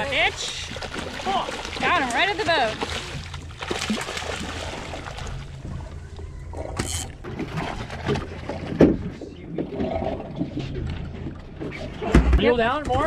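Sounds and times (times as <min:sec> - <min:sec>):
splash-like rush: 0:00.0 - 0:05.4
boat engine idling: 0:00.0 - 0:11.6.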